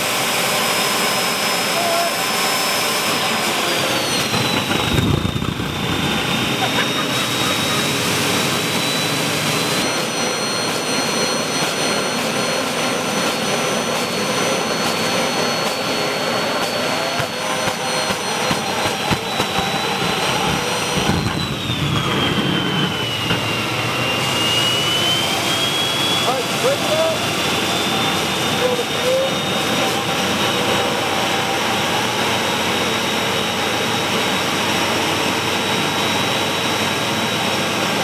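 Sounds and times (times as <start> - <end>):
turbocharger high whine: 0.0 - 38.0
roar of air and combustion: 3.1 - 9.3, 16.6 - 25.6.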